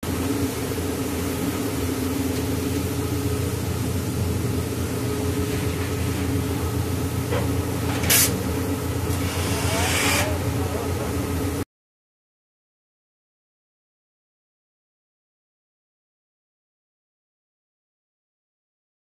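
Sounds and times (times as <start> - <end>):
engine humming: 0.0 - 11.6.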